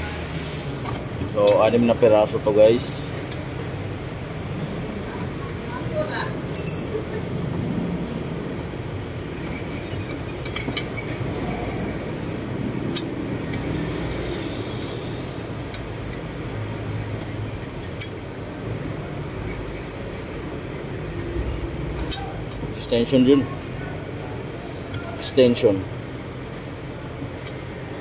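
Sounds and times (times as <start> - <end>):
socket wrench metallic clinks: 6.5 - 7.2.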